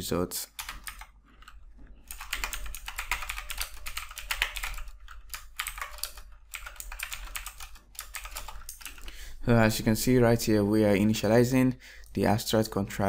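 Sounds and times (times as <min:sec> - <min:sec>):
computer keyboard typing: 0:00.5 - 0:09.2.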